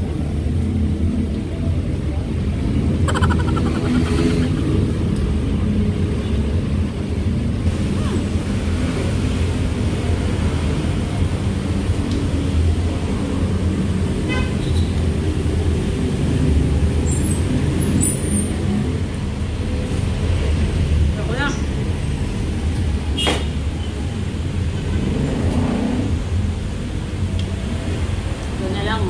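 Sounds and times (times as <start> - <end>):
high-pitched tone: 3.1 - 5.0.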